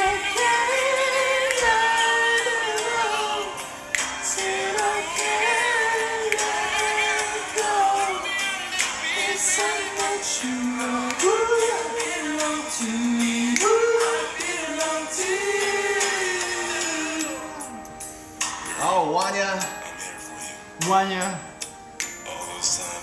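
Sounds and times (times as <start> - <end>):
people singing along: 0.0 - 18.0
song with sung melody: 0.0 - 23.0.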